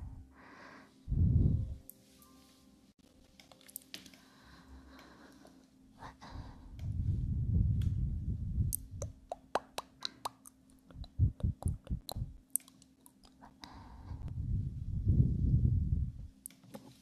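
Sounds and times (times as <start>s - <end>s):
soft brushing rumble: 1.0s - 1.9s, 6.4s - 9.3s, 10.9s - 12.4s, 13.9s - 16.4s.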